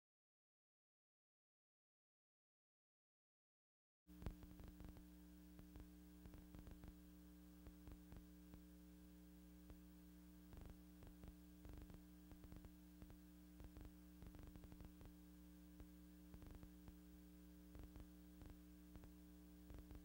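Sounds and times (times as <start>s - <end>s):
faint steady hum: 4.1s - 20.0s.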